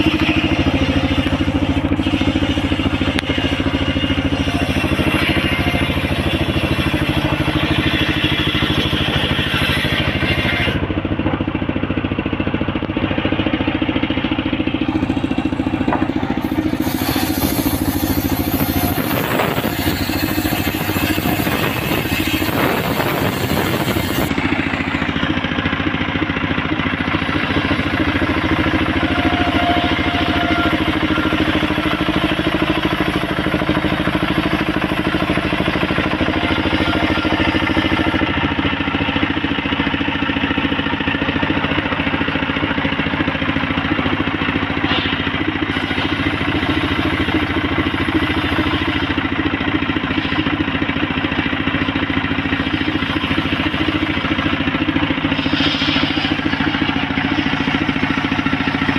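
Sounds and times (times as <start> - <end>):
circular saw cutting wood: 0.0 - 58.9.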